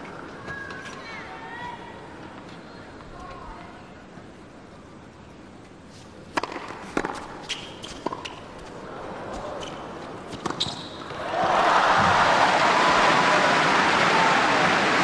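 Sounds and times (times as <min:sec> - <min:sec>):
racket striking tennis ball: 0:06.3 - 0:08.4
crowd applause and cheering: 0:11.2 - 0:15.0.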